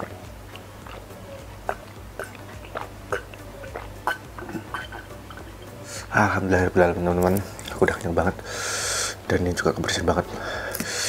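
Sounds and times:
person gulping milk: 0.0 - 5.7.

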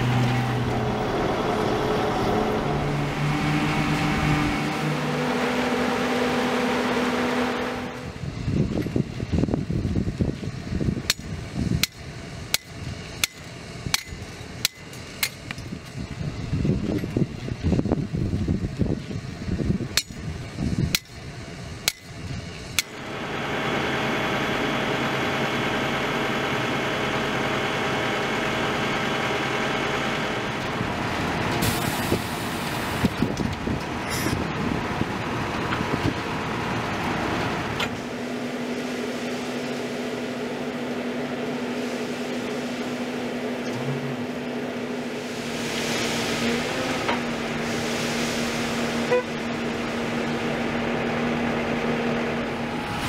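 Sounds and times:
diesel truck engine humming: 0.0 - 53.0
hammer striking steel stakes: 11.1 - 15.5, 20.9 - 21.2, 21.9 - 22.1.

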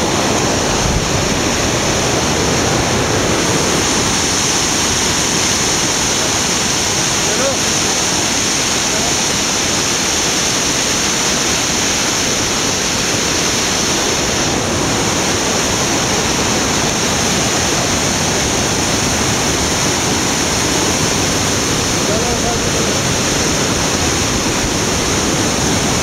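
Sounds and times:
river rushing over boulders: 0.0 - 26.0.

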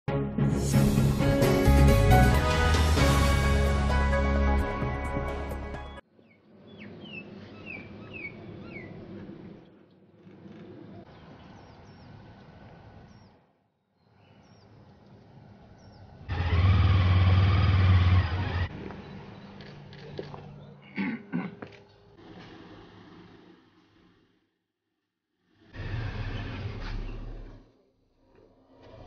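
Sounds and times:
intro music: 0.1 - 6.0
outdoor street ambience: 0.7 - 24.5, 25.3 - 29.0
vehicle engine running close: 15.9 - 20.6.

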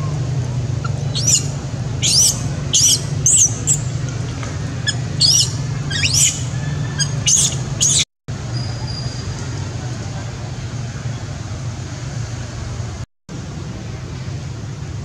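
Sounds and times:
baby monkey squealing: 0.8 - 8.1.

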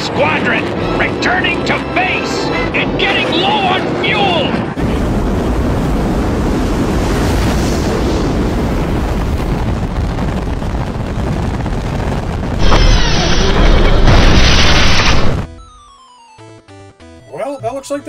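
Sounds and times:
electronic music tones: 15.5 - 18.0.

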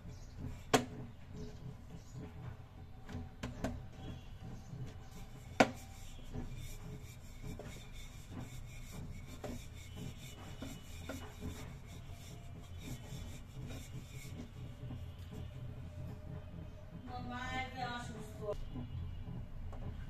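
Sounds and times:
rolling pin rubbing on dough: 0.0 - 2.5, 3.5 - 16.8
rolling pin knock: 5.6 - 6.8.

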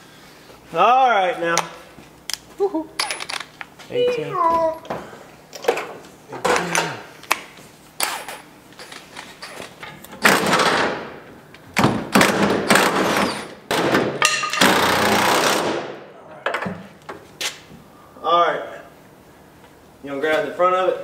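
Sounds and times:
knocks and thuds of hand work: 11.8 - 14.8.

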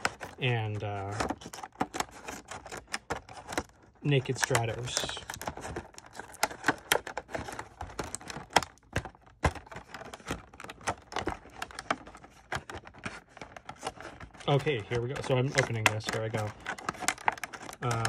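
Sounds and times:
plastic blister pack crinkling: 0.0 - 18.0.

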